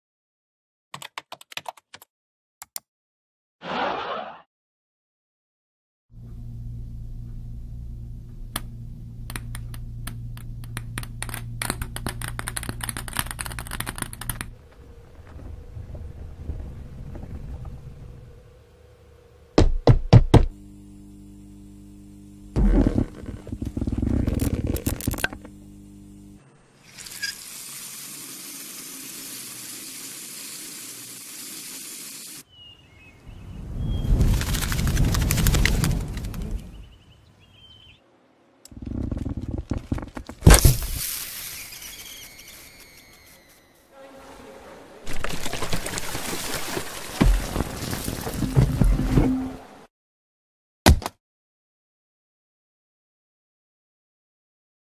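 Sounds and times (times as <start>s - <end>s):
low steady hum: 6.2s - 26.8s
ball bouncing down steps: 8.5s - 14.5s
run of clicks: 8.6s - 14.5s
running tap hissing: 26.8s - 32.4s.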